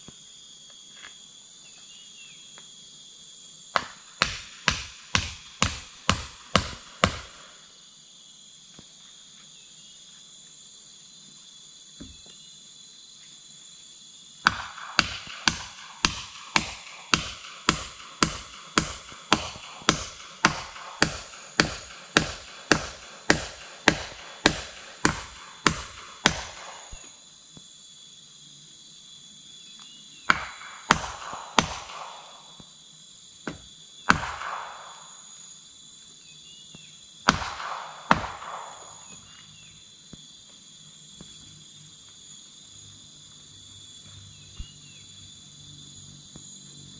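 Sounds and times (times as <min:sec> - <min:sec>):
hammer blows on timber: 0:03.8 - 0:07.4, 0:14.5 - 0:27.1.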